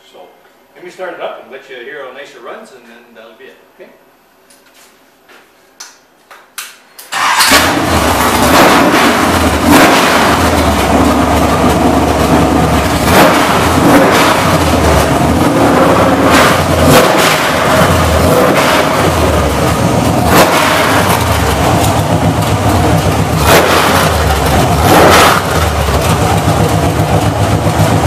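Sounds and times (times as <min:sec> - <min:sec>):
v eight engine revving: 0:07.1 - 0:28.0.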